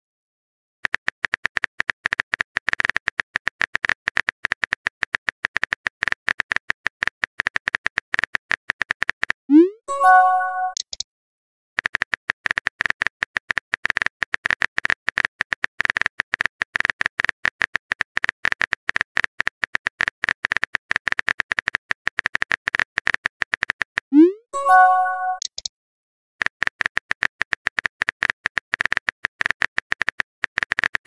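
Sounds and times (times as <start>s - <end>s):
keyboard typing clicks: 5.4s - 11.0s, 20.0s - 25.7s
chime-like tone: 9.9s - 10.8s, 24.6s - 25.4s.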